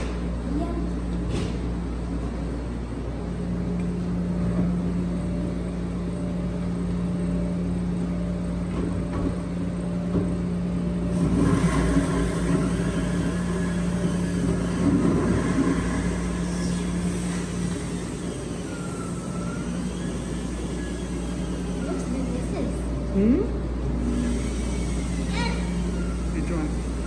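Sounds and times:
electric machine hum: 0.0 - 27.0.

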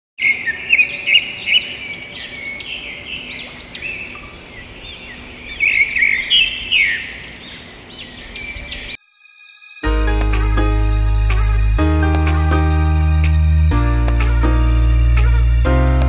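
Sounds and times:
songbird chirping: 0.2 - 11.8.

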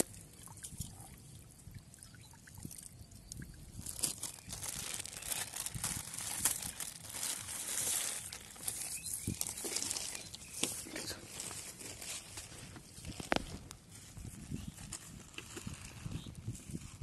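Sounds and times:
rustling and handling noise: 3.8 - 17.0.

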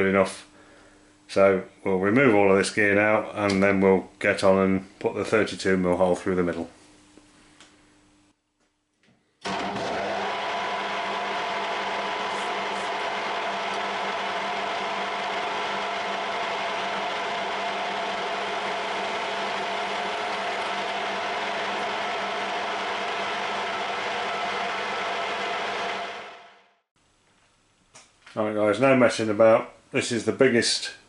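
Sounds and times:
metal lathe running: 9.4 - 26.5.

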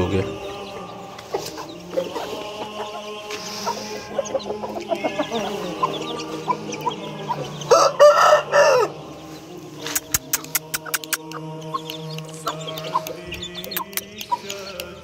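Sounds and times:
chicks peeping: 0.0 - 15.0
rooster crowing: 7.7 - 9.0
sharp clicks: 9.8 - 15.0.

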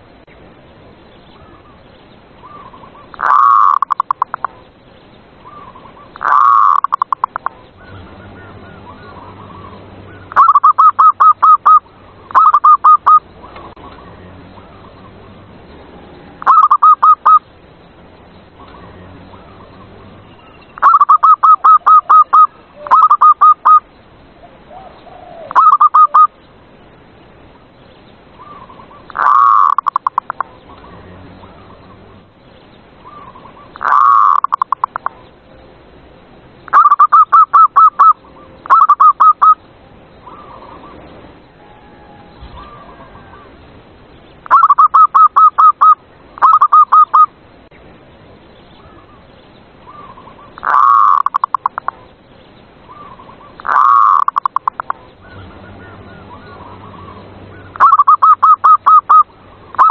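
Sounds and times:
dove cooing: 2.4 - 4.6, 5.5 - 13.2, 16.3 - 17.4, 20.8 - 23.8, 24.4 - 26.4, 28.4 - 30.8, 33.1 - 35.2, 41.6 - 43.6, 44.5 - 47.3, 49.9 - 52.0, 52.9 - 59.9.

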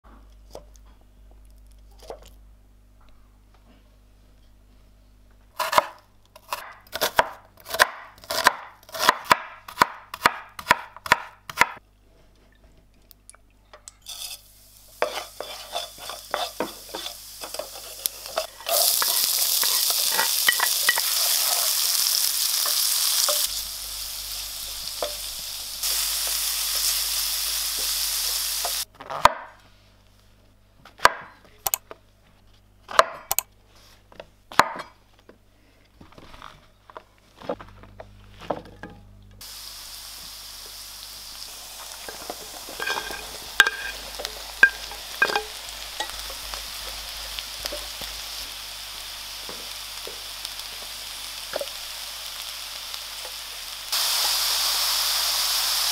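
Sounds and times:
knife chopping on a cutting board: 5.6 - 11.8
seeds sizzling in hot oil: 14.0 - 28.9, 39.4 - 55.9.

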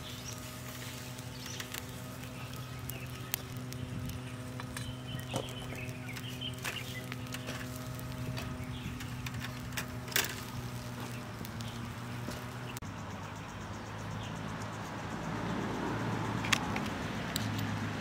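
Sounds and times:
grill clatter: 0.0 - 12.8
low hum: 0.0 - 12.8
wood fire crackling: 0.0 - 12.8.

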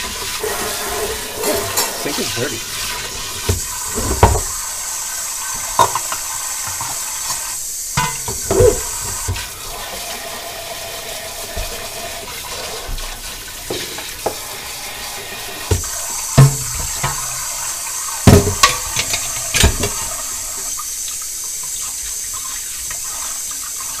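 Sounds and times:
pot being scrubbed: 0.0 - 20.5
tap running into metal sink: 1.4 - 4.6, 5.5 - 9.6, 11.4 - 14.6, 15.4 - 20.8.

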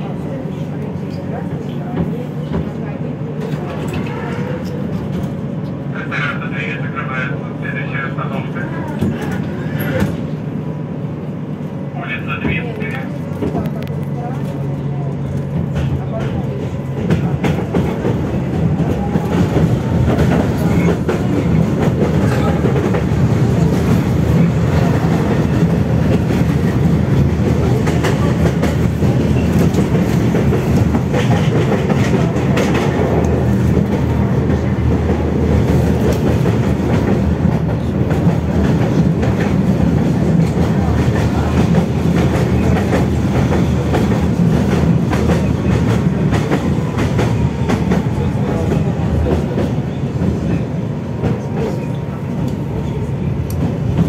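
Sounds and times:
tram wheels rumbling on rails: 0.0 - 54.0.

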